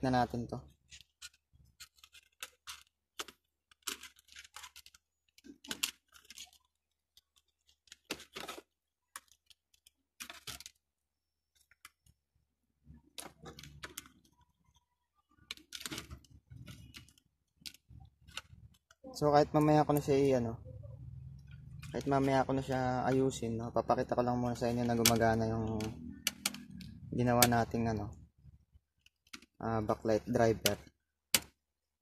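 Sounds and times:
wires rustling: 0:00.0 - 0:31.6
circuit board clicks and taps: 0:24.8 - 0:27.8.

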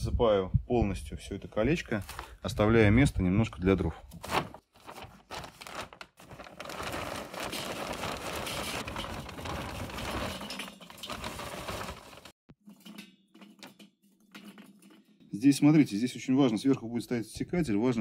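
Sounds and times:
charcoal briquettes pouring: 0:06.2 - 0:13.6.

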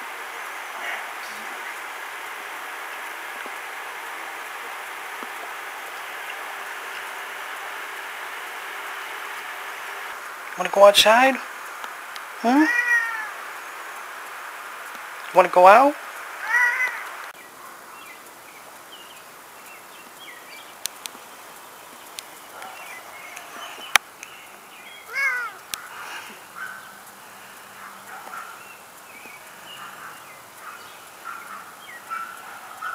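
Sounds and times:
cat meowing: 0:12.5 - 0:13.4, 0:16.4 - 0:17.1, 0:25.1 - 0:25.6
faint birdsong chirps: 0:16.4 - 0:32.9
sharp clicks: 0:20.8 - 0:21.3.

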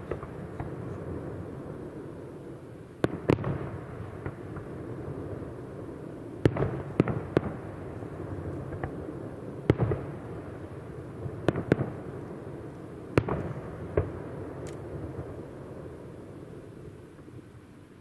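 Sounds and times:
distant firework bangs: 0:00.0 - 0:01.8, 0:06.4 - 0:12.3, 0:13.1 - 0:15.3.

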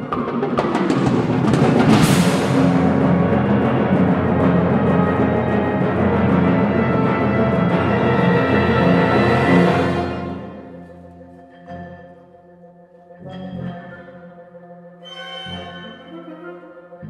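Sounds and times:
low drum roll: 0:00.0 - 0:10.4
sharp drum hits: 0:00.1 - 0:04.7
cymbal crash: 0:00.9 - 0:06.8
wind band playing chords: 0:01.2 - 0:11.0.

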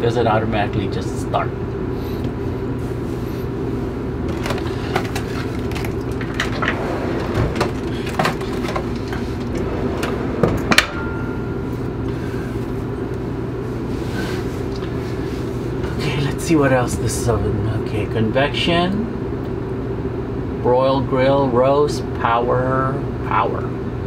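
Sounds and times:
microwave humming: 0:00.0 - 0:20.6
clicks and knocks of handled things: 0:04.3 - 0:06.8.

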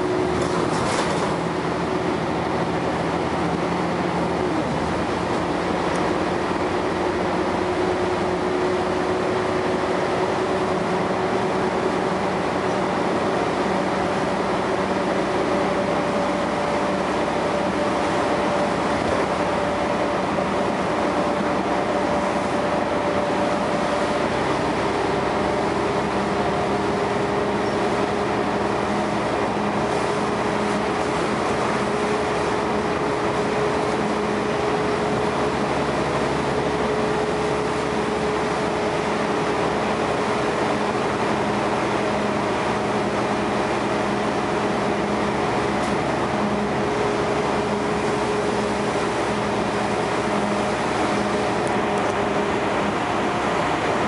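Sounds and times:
bus engine and road noise: 0:00.0 - 0:54.0.

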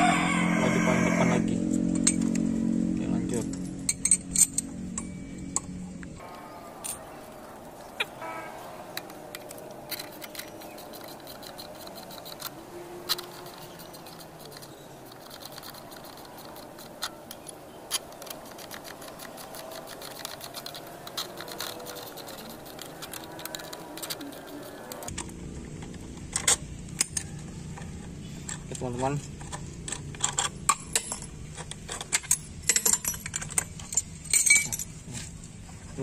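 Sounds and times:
wrench clicking on bolts: 0:08.9 - 0:25.2, 0:26.4 - 0:34.9.

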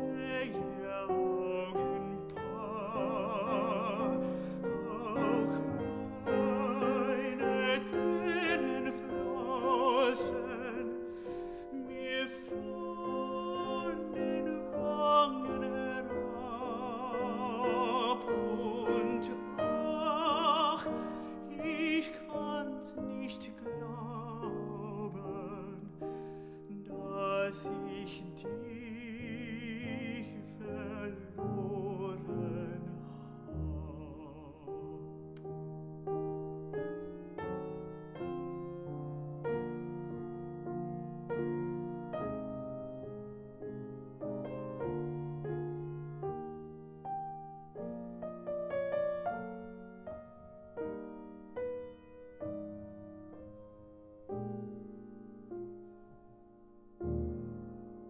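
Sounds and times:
man singing with vibrato: 0:00.0 - 0:35.3
grand piano accompaniment: 0:00.0 - 0:58.0.

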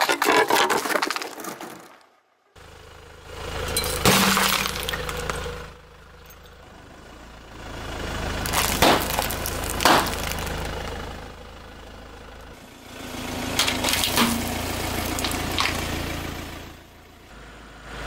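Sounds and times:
plastic bottle crunching: 0:00.0 - 0:01.9, 0:08.4 - 0:10.6, 0:13.6 - 0:15.8
car engine running low: 0:02.4 - 0:18.0
snack bag bursting: 0:08.5 - 0:10.5.

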